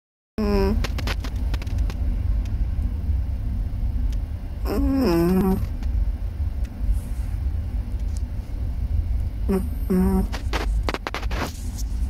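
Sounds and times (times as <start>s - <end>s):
dog whining moan: 0.4s - 0.9s, 4.6s - 5.8s, 9.5s - 10.4s
steady low rumble: 0.4s - 12.0s.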